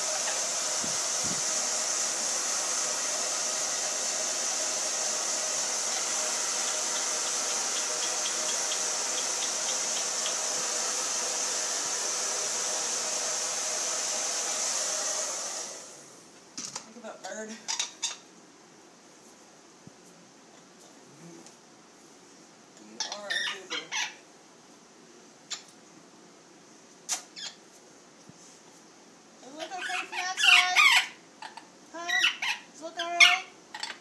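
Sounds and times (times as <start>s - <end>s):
hair dryer blowing: 0.0s - 16.3s.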